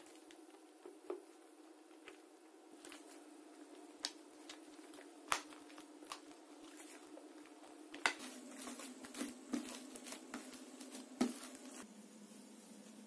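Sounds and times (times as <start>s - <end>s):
faint steady hum: 0.0s - 13.0s
hands squishing slime: 1.9s - 11.8s.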